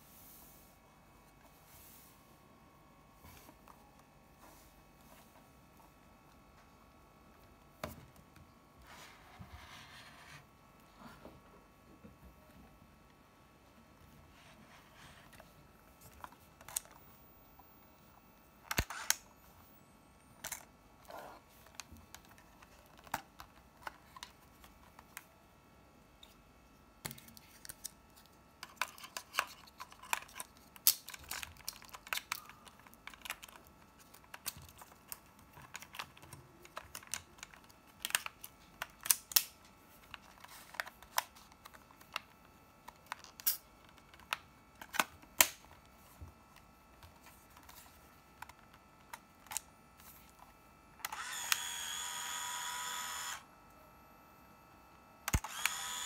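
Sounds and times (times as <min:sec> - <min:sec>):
camera motor whirring: 0:51.0 - 0:53.5, 0:55.3 - 0:56.0.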